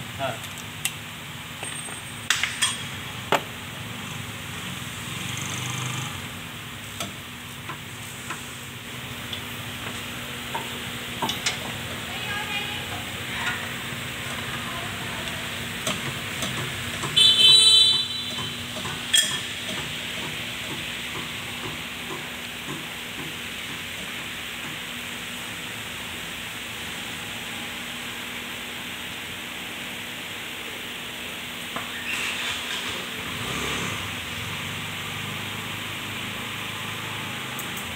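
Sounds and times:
workshop background hiss: 0.0 - 37.9.

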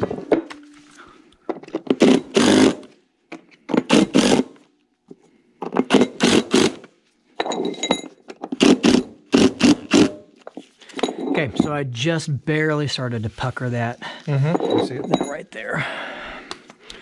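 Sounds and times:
cordless driver driving screws: 1.9 - 2.9, 3.7 - 4.5, 5.7 - 6.9, 8.5 - 10.2.

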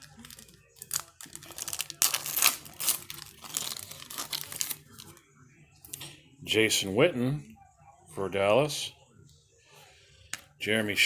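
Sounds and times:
foil wrapper crinkling: 0.0 - 5.2.

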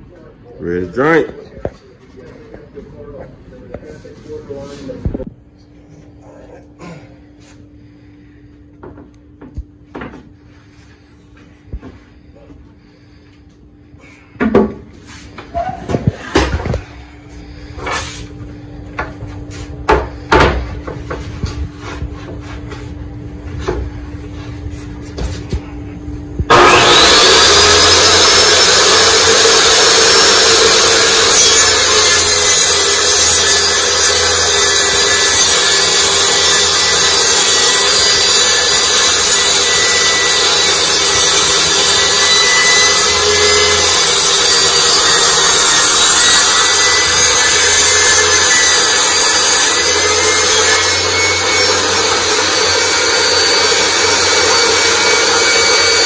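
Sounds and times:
table saw motor running: 26.5 - 56.0.

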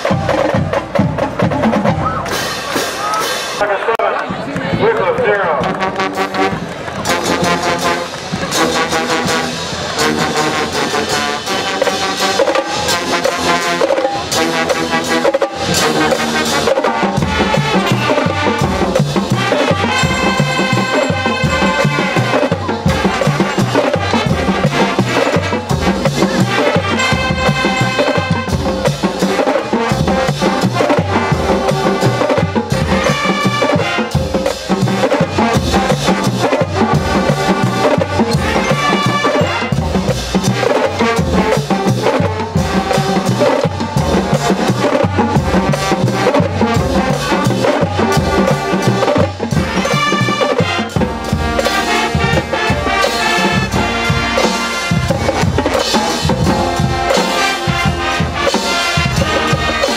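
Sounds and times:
marching band playing: 0.0 - 59.9
bass drums beating: 14.4 - 59.9.

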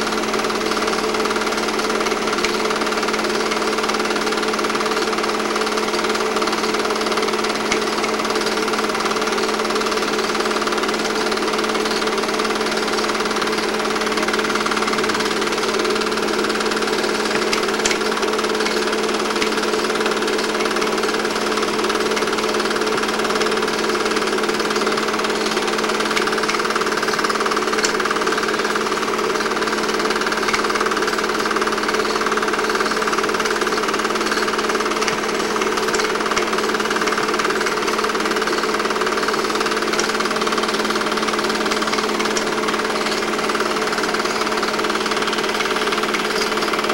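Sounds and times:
film projector clatter: 0.0 - 46.9
projector hum: 0.0 - 46.9.

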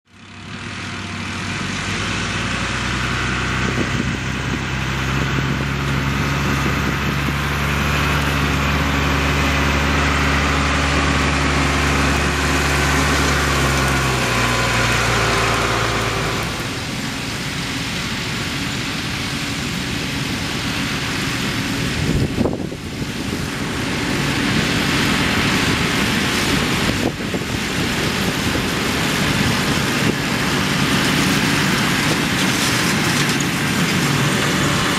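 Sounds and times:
tractor diesel engine running: 0.1 - 34.9
tractor pulling round baler: 0.1 - 34.9.

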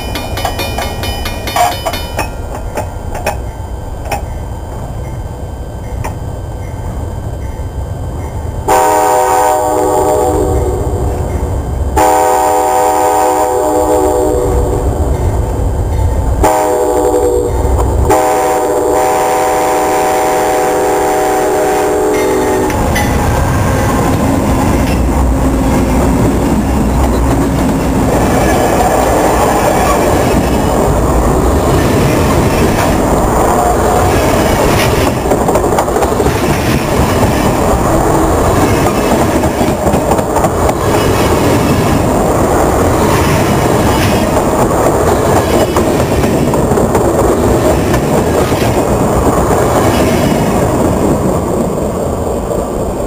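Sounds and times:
train wheels clacking on rails: 0.0 - 5.2, 22.1 - 50.9
locomotive horn blasts: 8.7 - 10.9, 12.0 - 14.8, 16.4 - 22.8.

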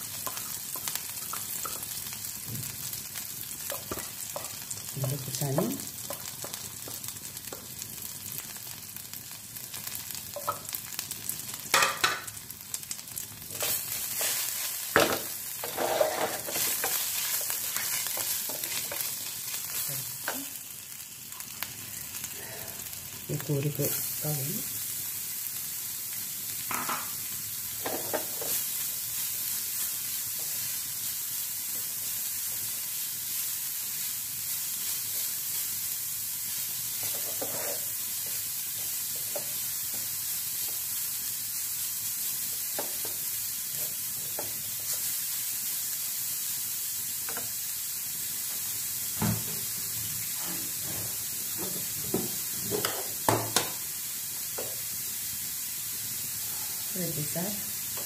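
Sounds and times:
food sizzling in a pan: 0.0 - 58.0
wooden spoon stirring and scraping: 13.5 - 20.4, 36.9 - 39.6.

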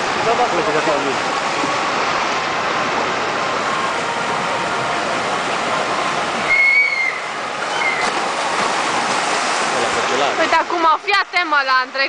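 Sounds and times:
water pouring into pool: 0.0 - 10.7
short high whistle: 6.5 - 7.2.

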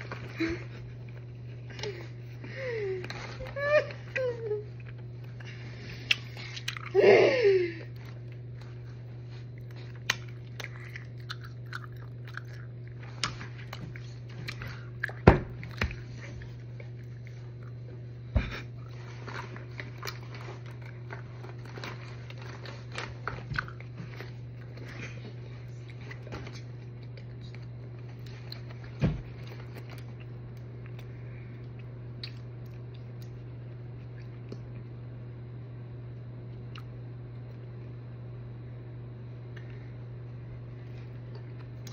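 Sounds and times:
steady low hum: 0.0 - 41.9
lip-smacking mouth noises: 4.8 - 7.0, 31.6 - 33.4.

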